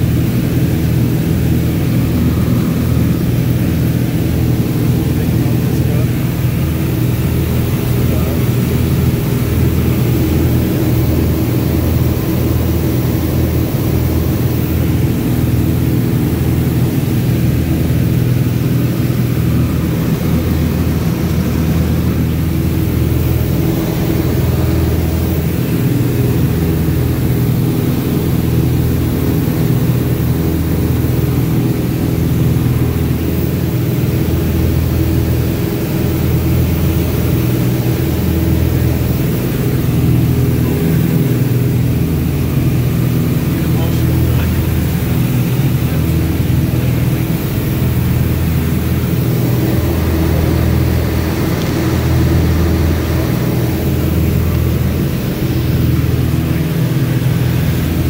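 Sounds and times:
propeller airplane engine drone: 0.0 - 58.0.

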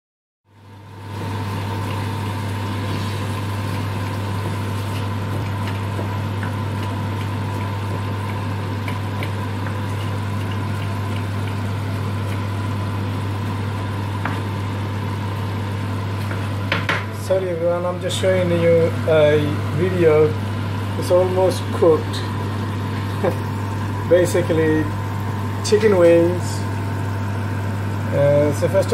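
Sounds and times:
steady low hum: 0.5 - 28.9
curry simmering in a frying pan: 0.6 - 16.7, 24.9 - 25.7, 26.6 - 28.8.

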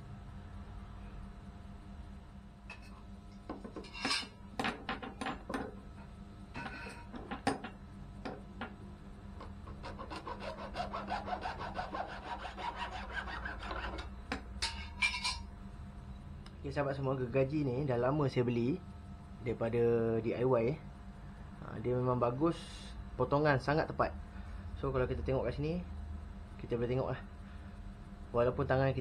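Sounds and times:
hand saw cutting: 9.7 - 14.0.

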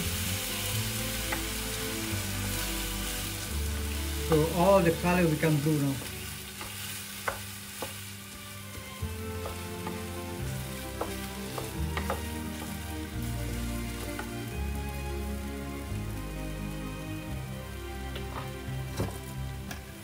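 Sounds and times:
rice sizzling in oil: 0.0 - 20.0
spatula clicking against pan: 6.6 - 8.0, 11.0 - 12.8.

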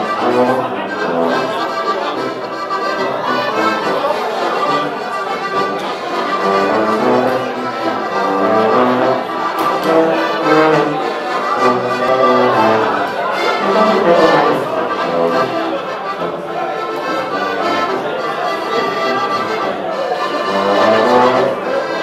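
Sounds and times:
button accordion folk music: 0.0 - 22.0
tuba bass line: 0.0 - 22.0.

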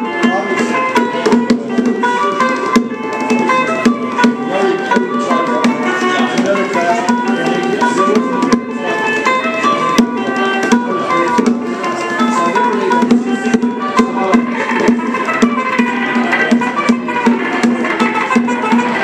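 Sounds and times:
bongos: 0.0 - 19.0
electric guitar: 0.0 - 19.0.

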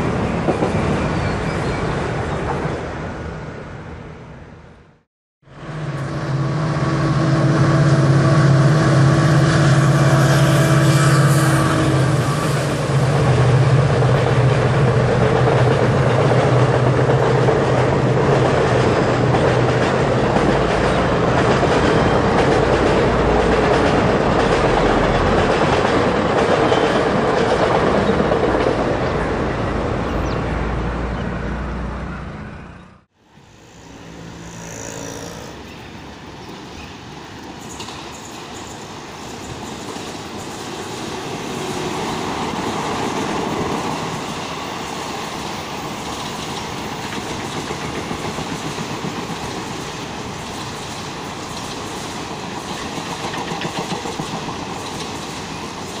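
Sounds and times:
train wheels clattering on rails: 0.0 - 1.4, 12.4 - 29.2, 36.5 - 56.0
diesel locomotive engine drone: 0.0 - 56.0.

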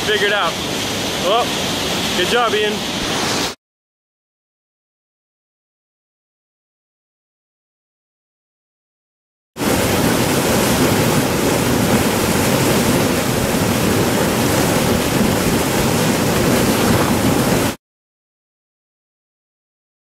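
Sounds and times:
water rushing over boulders: 0.0 - 3.6, 9.6 - 17.8.

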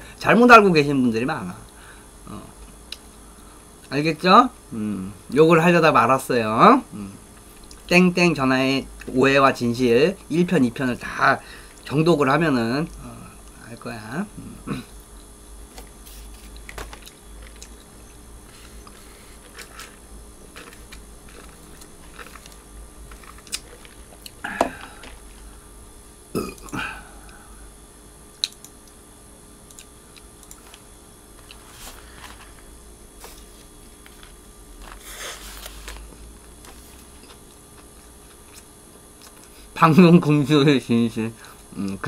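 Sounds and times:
biting into wrapped burger: 18.5 - 25.4
chewing: 20.6 - 24.4, 36.6 - 39.6.

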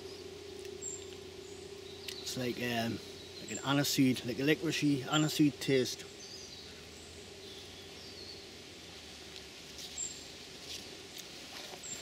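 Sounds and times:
faint bird chirps: 0.0 - 8.6
soft rustles: 9.0 - 12.0.

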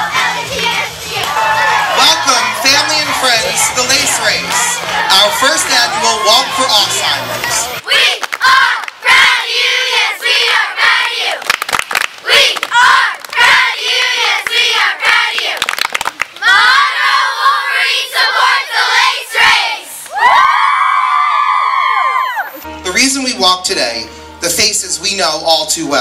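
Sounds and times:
girls shouting a cheer: 0.0 - 3.7, 4.4 - 11.4, 12.2 - 15.6, 16.4 - 22.6
rhythmic clapping: 0.0 - 6.0, 6.9 - 9.0, 10.9 - 16.7.

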